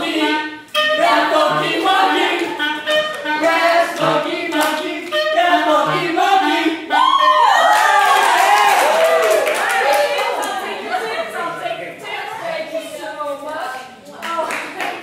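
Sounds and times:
clarinet playing pop melody: 0:00.0 - 0:08.0.

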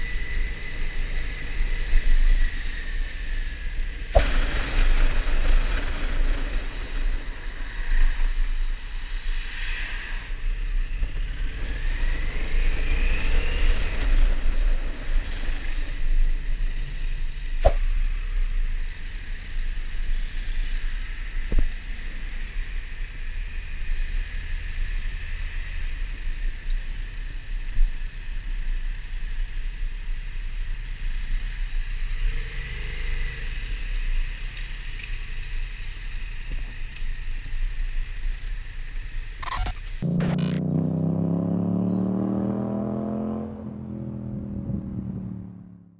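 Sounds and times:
short rising whine: 0:39.4 - 0:40.8
motorcycle engine low rumble: 0:40.0 - 0:45.9.

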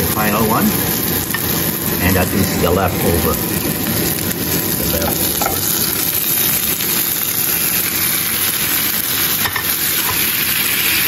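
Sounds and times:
exhaust fan humming: 0:00.0 - 0:11.0.

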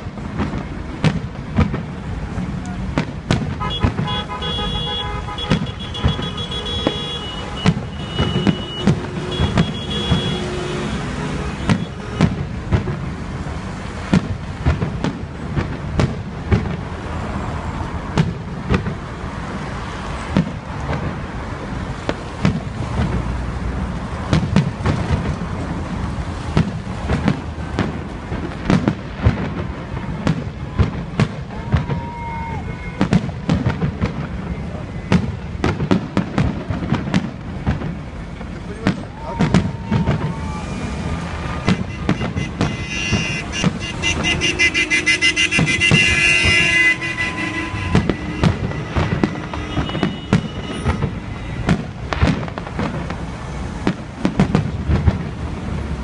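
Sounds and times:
fireworks bursting: 0:00.0 - 0:56.0.

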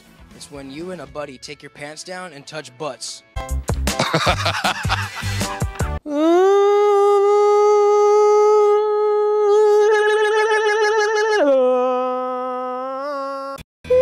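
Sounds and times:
man singing long notes: 0:06.1 - 0:11.9.

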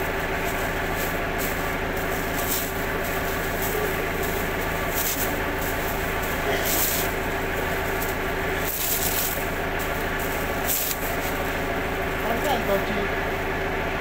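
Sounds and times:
hissing rustle: 0:00.0 - 0:13.6
machine hum: 0:00.0 - 0:14.0.

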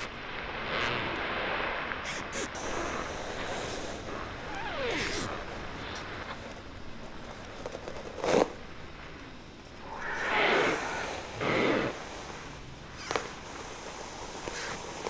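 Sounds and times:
heavy breathing: 0:09.8 - 0:14.8.

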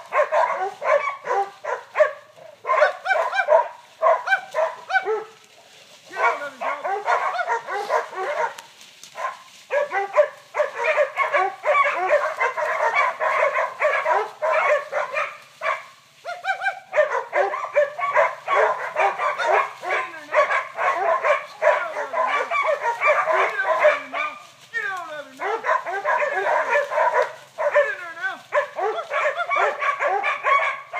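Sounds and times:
dogs barking rapidly: 0:00.0 - 0:05.5, 0:06.1 - 0:30.9.

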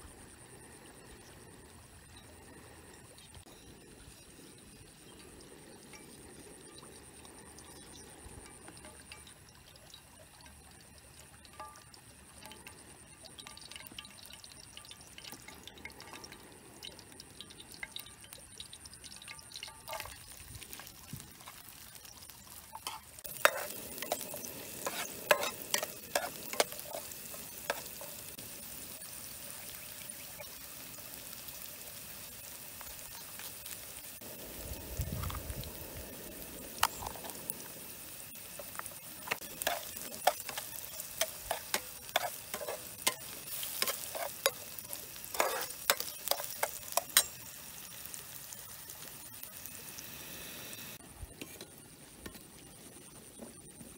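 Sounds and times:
garlic sizzling in hot oil: 0:00.0 - 0:53.9
metal spatula scraping pan: 0:22.7 - 0:28.4, 0:38.5 - 0:47.7.

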